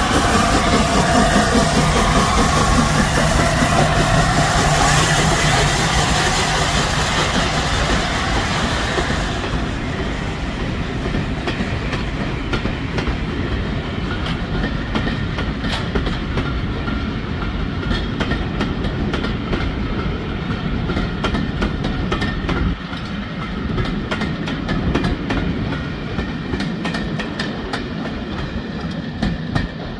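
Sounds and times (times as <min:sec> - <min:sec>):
steam locomotive hissing steam: 0:00.0 - 0:15.9
train wheels clicking over rail joints: 0:00.0 - 0:29.9.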